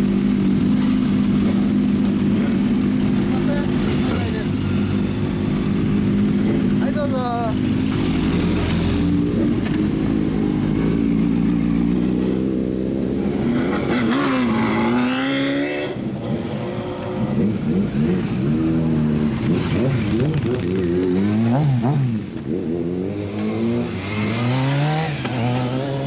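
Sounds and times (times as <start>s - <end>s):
motorcycle engines revving: 0.0s - 26.0s.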